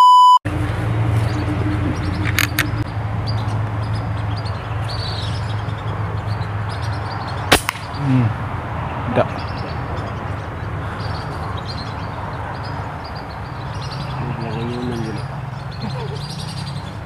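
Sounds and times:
test-tone beep: 0:00.0 - 0:00.4
low hum: 0:00.5 - 0:04.4
toy rifle shot crack: 0:07.5 - 0:07.9.

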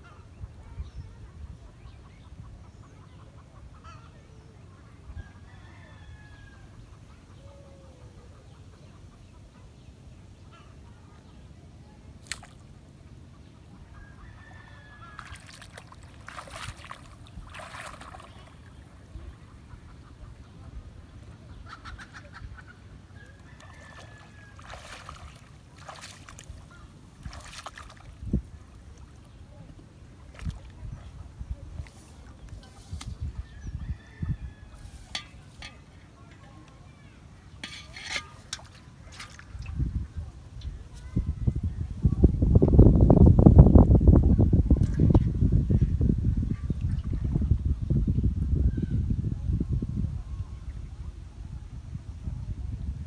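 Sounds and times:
faint poultry calls: 0:02.1 - 0:09.8, 0:10.4 - 0:11.2, 0:13.4 - 0:15.5.

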